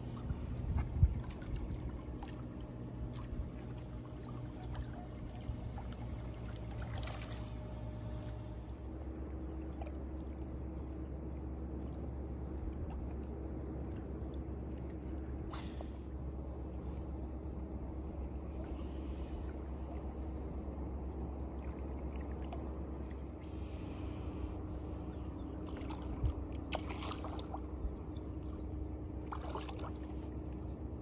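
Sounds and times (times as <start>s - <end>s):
splash: 0.0s - 8.6s, 25.6s - 27.7s, 29.2s - 30.3s
steady low hum: 0.0s - 31.0s
water lapping and sloshing: 0.0s - 31.0s.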